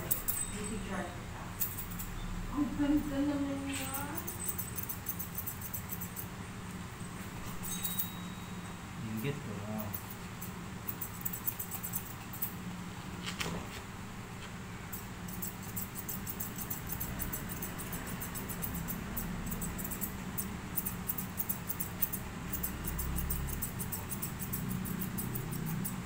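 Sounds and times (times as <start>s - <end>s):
scissors snipping fur: 0.0s - 0.7s, 1.6s - 2.1s, 3.5s - 6.3s, 9.2s - 12.6s, 14.9s - 26.0s
steady low hum: 0.0s - 26.0s.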